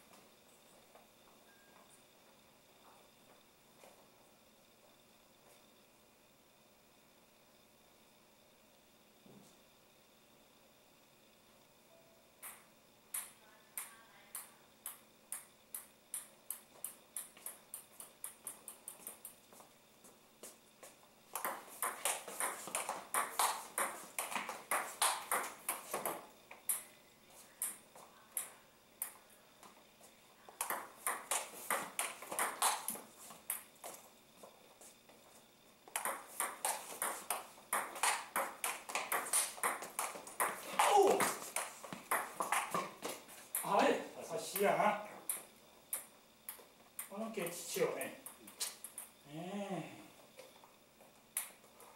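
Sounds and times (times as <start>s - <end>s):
table tennis ball hits: 12.4s - 19.3s, 21.3s - 26.9s, 30.6s - 33.7s, 35.9s - 43.9s
ball bouncing: 12.4s - 19.4s, 21.3s - 26.9s, 30.5s - 34.0s, 35.9s - 43.9s.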